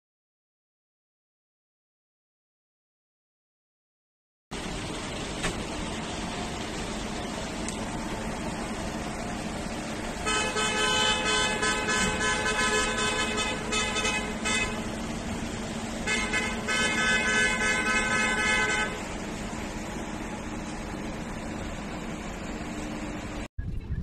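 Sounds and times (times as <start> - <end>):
engine hum: 4.5 - 24.0
vehicle horns honking: 10.2 - 15.0, 16.0 - 19.2.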